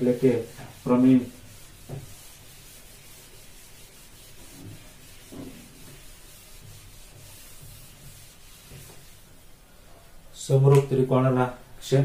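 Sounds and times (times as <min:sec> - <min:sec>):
eraser rubbing on whiteboard: 0:00.0 - 0:09.4.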